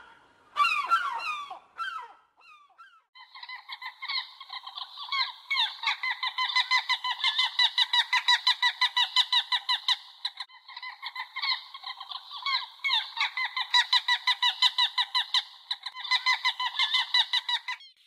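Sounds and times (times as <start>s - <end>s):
gulls calling: 0.0s - 18.0s.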